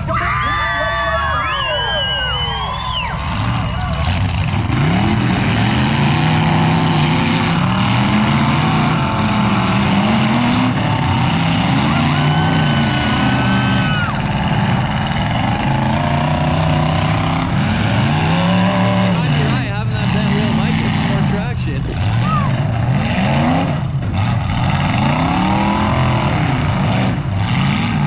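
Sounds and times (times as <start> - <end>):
car engines revving: 0.0 - 28.0.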